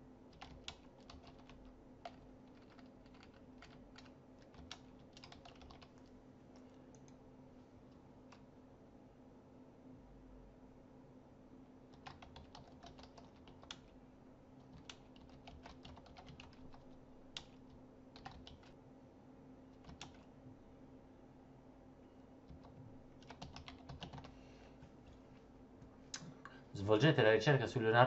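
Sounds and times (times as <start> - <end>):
faint typing on keyboard: 0.3 - 8.5, 11.8 - 18.8, 19.7 - 20.4, 22.4 - 25.4.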